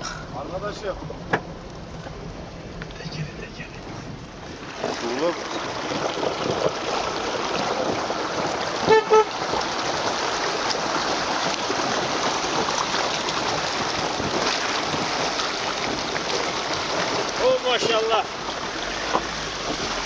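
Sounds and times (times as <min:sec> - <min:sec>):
water splashing against vehicle: 0:00.0 - 0:20.0
car horn toots: 0:08.8 - 0:09.4.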